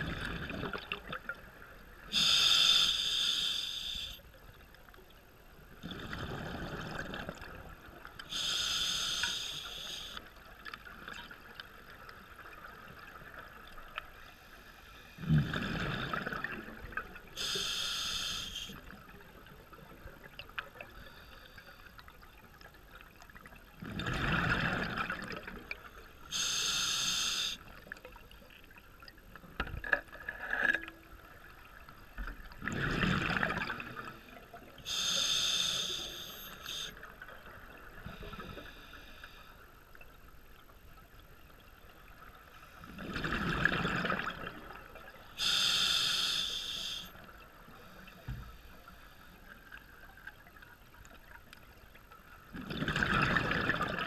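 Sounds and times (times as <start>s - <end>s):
exhaled bubbles underwater: 0.0s - 2.2s, 5.7s - 8.4s, 15.2s - 17.3s, 23.3s - 25.8s, 31.2s - 35.1s, 42.8s - 45.6s, 52.5s - 54.0s
regulator hiss: 2.2s - 4.2s, 8.3s - 10.2s, 17.4s - 18.8s, 26.3s - 27.6s, 34.9s - 36.9s, 45.4s - 47.1s.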